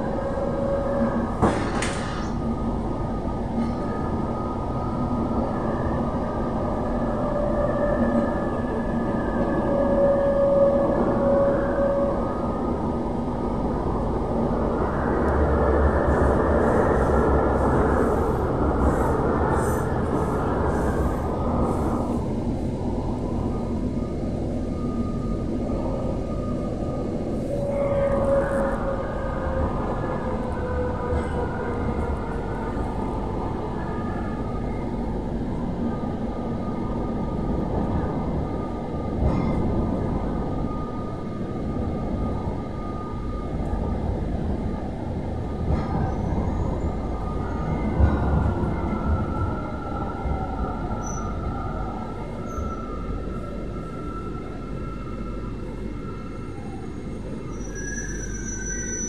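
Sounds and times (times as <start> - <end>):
train wheels rumbling on rails: 0.0 - 59.0
thin steady squeal: 48.8 - 59.0.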